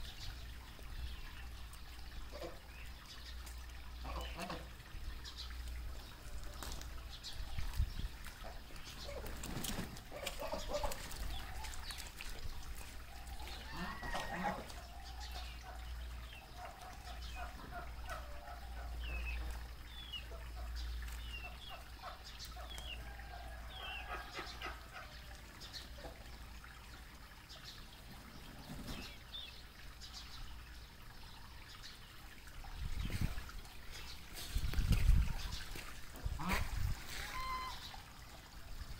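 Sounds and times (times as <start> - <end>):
ducks quacking: 2.3 - 2.7, 4.0 - 4.8, 10.1 - 11.8, 13.4 - 15.8, 36.2 - 38.0.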